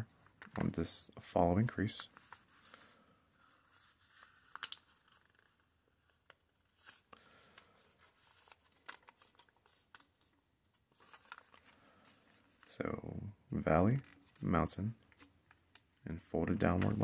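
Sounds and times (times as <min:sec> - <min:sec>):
paper rustling and crackling: 0:02.0 - 0:12.8, 0:16.6 - 0:17.0.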